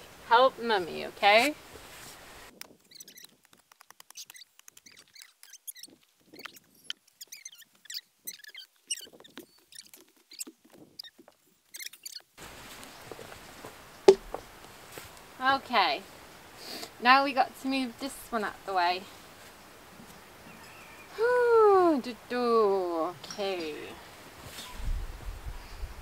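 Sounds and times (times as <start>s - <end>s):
soil and roots crackling: 0.3s - 16.0s.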